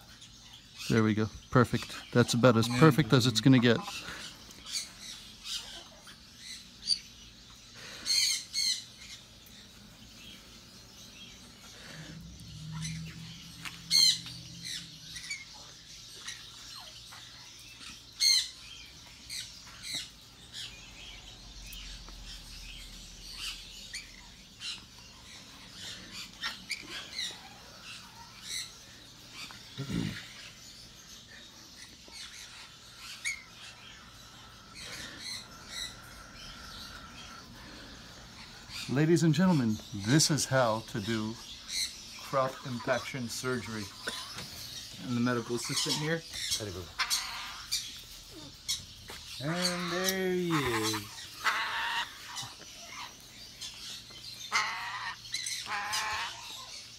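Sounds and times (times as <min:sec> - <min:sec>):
parrot squawking: 0:12.0 - 0:17.5, 0:41.7 - 0:56.9.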